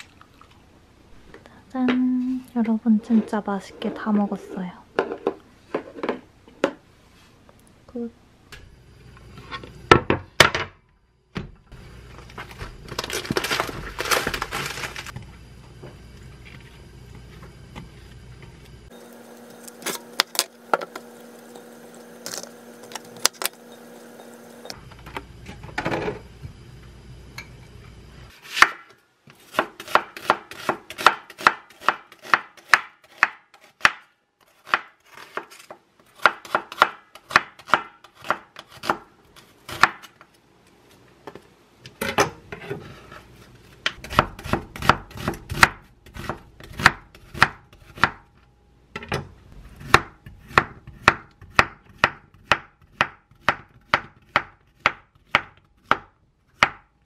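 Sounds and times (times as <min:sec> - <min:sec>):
knife chopping on wooden board: 0:29.5 - 0:35.5, 0:36.2 - 0:39.1, 0:44.0 - 0:48.2, 0:49.8 - 0:56.8.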